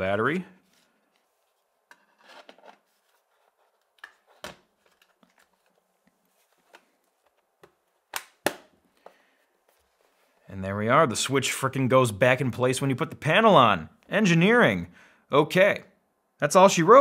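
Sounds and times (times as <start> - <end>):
soft sliding and rubbing: 0.6 - 7.5, 9.4 - 10.5.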